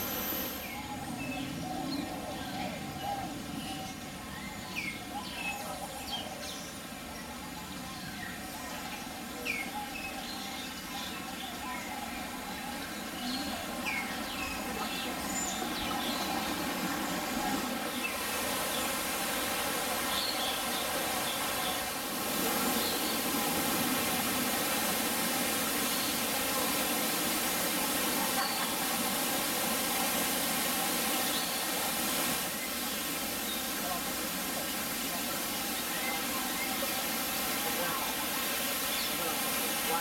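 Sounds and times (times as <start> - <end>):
waterfall rushing: 13.0 - 40.0.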